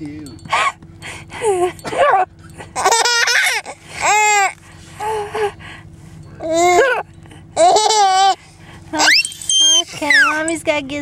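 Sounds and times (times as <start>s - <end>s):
baby laughing and squealing: 2.8s - 4.6s, 6.4s - 7.0s, 7.6s - 8.4s, 9.0s - 10.4s.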